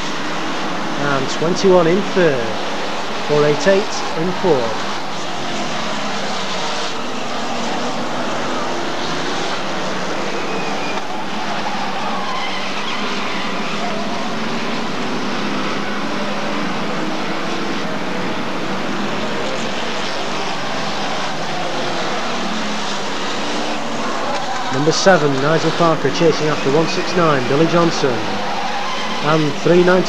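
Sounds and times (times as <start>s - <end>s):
racing car engines at speed: 0.0s - 30.0s.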